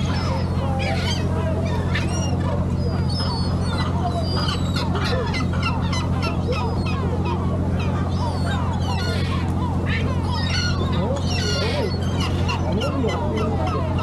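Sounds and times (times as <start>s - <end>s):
seagulls calling: 0.0s - 14.0s
steady low hum: 0.0s - 14.0s.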